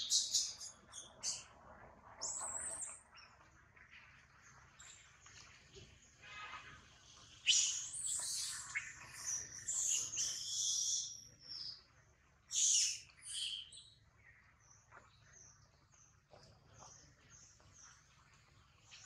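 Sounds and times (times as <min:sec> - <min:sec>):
high-pitched animal chirps and squeals: 0:07.5 - 0:11.2.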